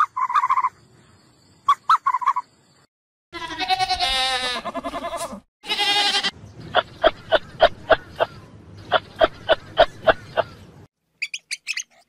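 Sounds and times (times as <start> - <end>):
long quavering animal calls: 0.0 - 1.1.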